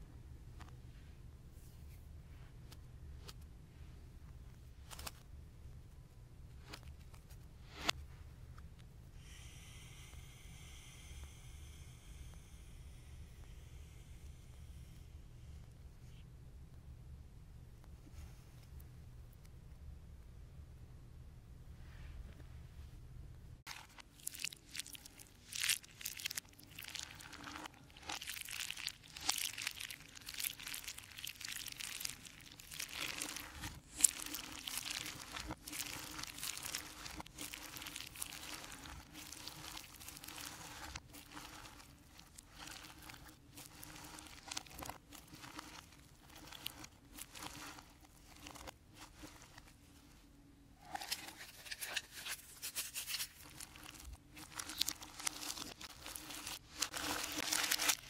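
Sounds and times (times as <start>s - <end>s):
paper packet crinkling: 23.7s - 49.8s, 50.8s - 58.0s
hands squeezing crunchy slime: 23.7s - 49.9s, 50.8s - 58.0s.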